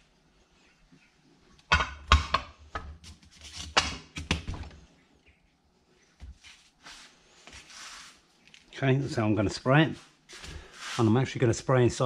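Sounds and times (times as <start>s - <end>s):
soft rustles of cardboard: 6.2s - 8.8s.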